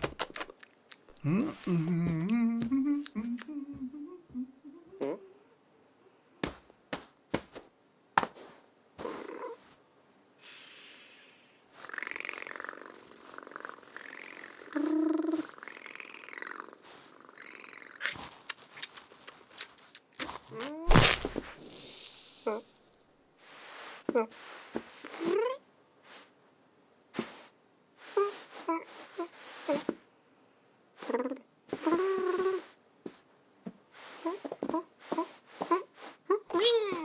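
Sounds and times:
person imitating cat purring: 0:01.1 - 0:05.6, 0:09.0 - 0:09.6, 0:10.9 - 0:18.3, 0:22.4 - 0:22.8, 0:25.1 - 0:25.6, 0:28.1 - 0:30.0, 0:31.0 - 0:32.7, 0:34.1 - 0:37.0.

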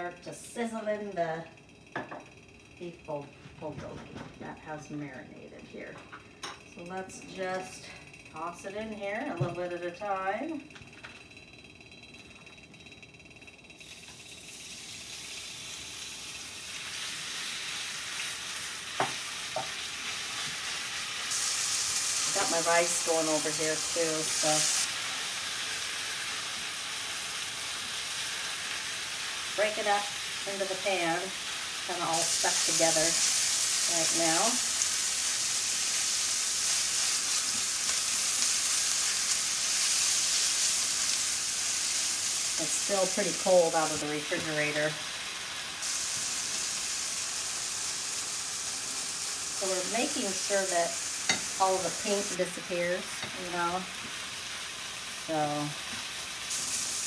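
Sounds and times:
meat sizzling in a skillet: 0:13.8 - 0:57.0.

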